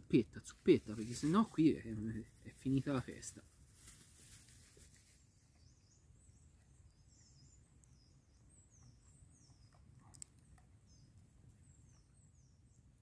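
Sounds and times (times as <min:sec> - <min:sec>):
small bird chirping: 0:04.8 - 0:13.0.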